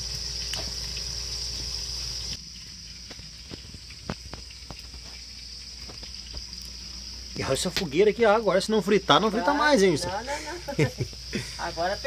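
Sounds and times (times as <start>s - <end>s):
crickets trilling: 0.0s - 12.0s
wood fire crackling: 0.0s - 12.0s.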